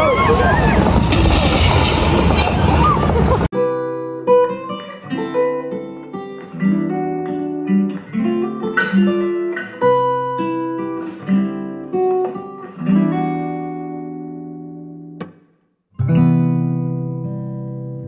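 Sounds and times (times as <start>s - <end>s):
guitar picking and strumming: 3.1s - 15.4s, 16.0s - 18.0s.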